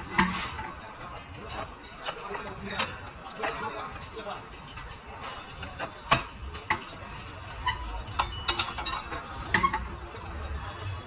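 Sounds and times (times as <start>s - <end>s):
low workshop rumble: 0.0s - 11.0s
wrench clinking on steel: 1.4s - 9.8s.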